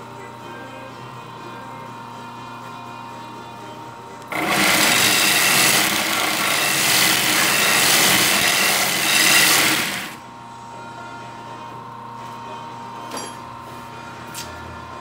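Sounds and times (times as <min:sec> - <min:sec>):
machine motor hum: 0:04.2 - 0:10.4
knife grinding on belt sander: 0:04.3 - 0:10.2.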